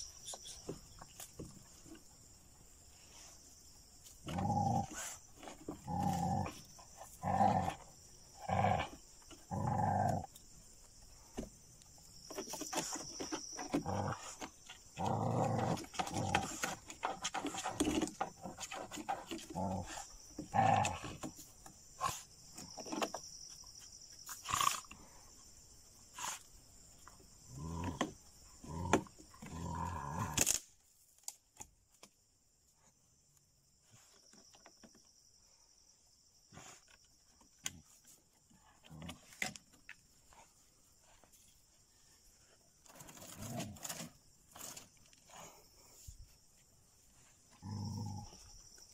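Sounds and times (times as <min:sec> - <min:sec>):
dogs barking and growling: 0:04.2 - 0:10.5, 0:13.6 - 0:21.4.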